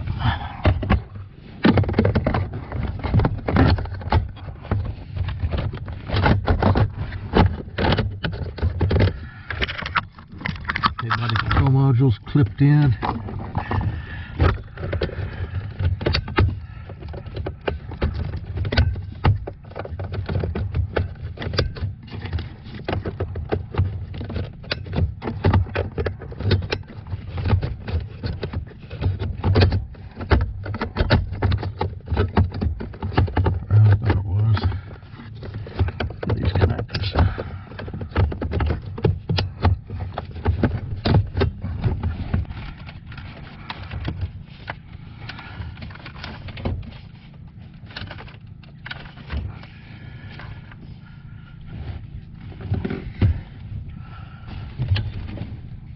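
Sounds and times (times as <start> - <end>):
low bumps and thuds: 49.2 - 55.9.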